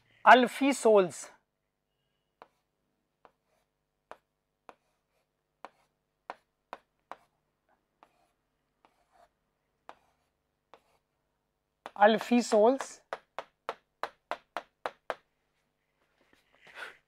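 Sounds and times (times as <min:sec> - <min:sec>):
marker writing on whiteboard: 0:02.4 - 0:11.1, 0:11.8 - 0:15.3.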